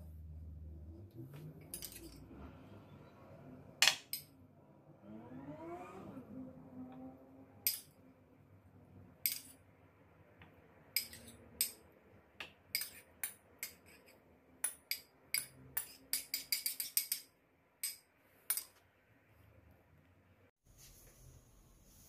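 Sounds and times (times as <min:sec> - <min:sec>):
metal utensil clinking on bowl: 0:01.6 - 0:02.2, 0:09.2 - 0:09.6, 0:11.0 - 0:11.8.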